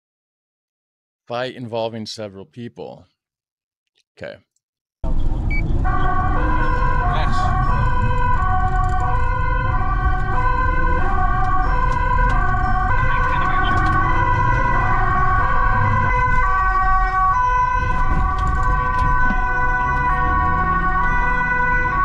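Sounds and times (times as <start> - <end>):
engine and road rumble: 5.0 - 22.0
two-tone police siren: 5.4 - 22.0.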